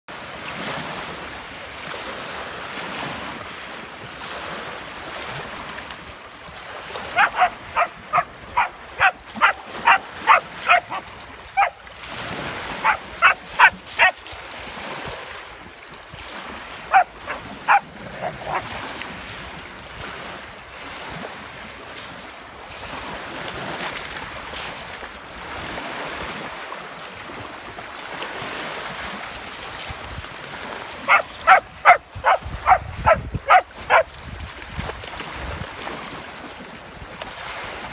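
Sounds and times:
lake waves lapping at shore: 0:00.1 - 0:37.9
dog barking: 0:07.1 - 0:11.8, 0:12.8 - 0:14.2, 0:16.9 - 0:18.7, 0:31.0 - 0:34.1.

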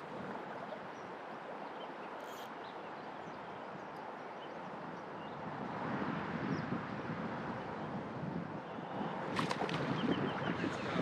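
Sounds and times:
faint bird chirps: 0:01.7 - 0:04.6.

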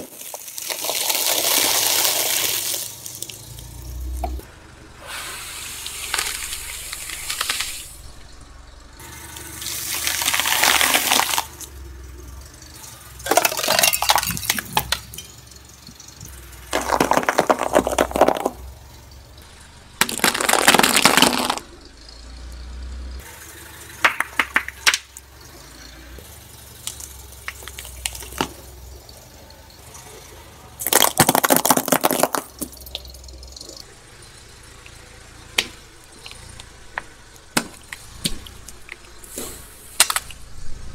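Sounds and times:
tyre crushing objects: 0:00.0 - 0:03.3, 0:09.6 - 0:11.6, 0:16.7 - 0:18.6, 0:20.0 - 0:21.6, 0:30.8 - 0:32.8, 0:35.6 - 0:40.4.

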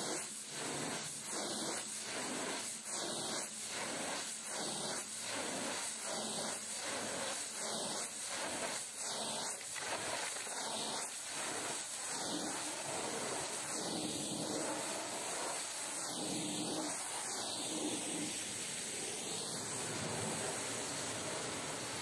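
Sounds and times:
pressure washer water jet spraying: 0:08.0 - 0:22.0.

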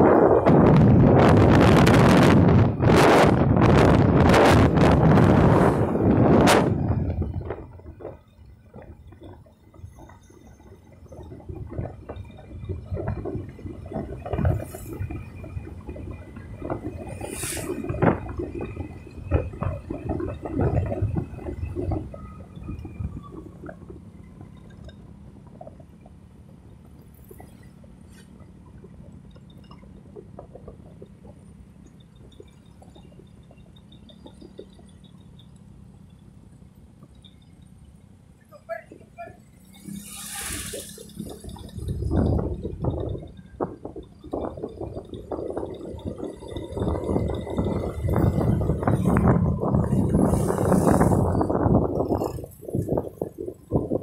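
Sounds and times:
wind buffeting microphone: 0:00.0 - 0:26.2, 0:39.7 - 0:54.0.

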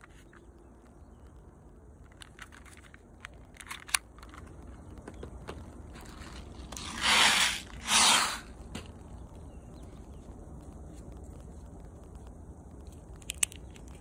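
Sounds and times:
toy pistol handling clicks: 0:02.1 - 0:04.5, 0:13.2 - 0:13.9
loud rushes of noise: 0:06.8 - 0:08.6.

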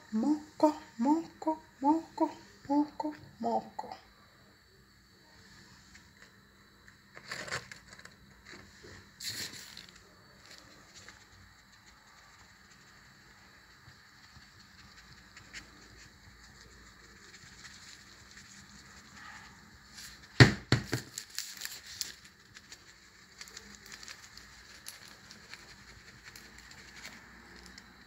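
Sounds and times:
plastic shaker knocking: 0:20.4 - 0:21.2.

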